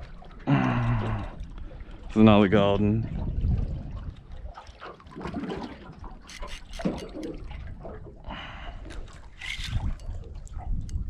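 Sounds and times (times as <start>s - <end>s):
water sloshing around boat hull: 0.0s - 11.0s.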